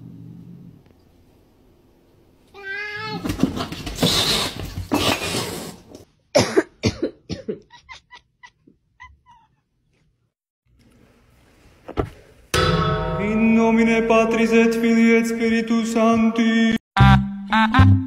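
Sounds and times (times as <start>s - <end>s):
cat yowling: 2.6s - 3.2s
cats hissing and scuffling: 2.6s - 6.1s.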